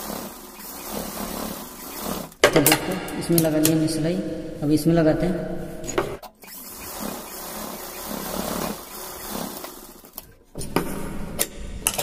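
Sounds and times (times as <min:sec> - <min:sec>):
sewing machine running: 0:00.0 - 0:02.8, 0:06.4 - 0:10.2.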